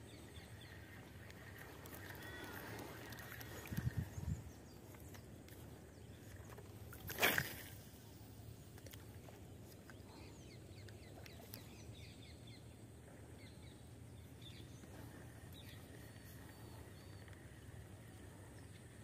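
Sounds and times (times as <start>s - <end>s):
birds chirping faintly: 0.0s - 19.0s.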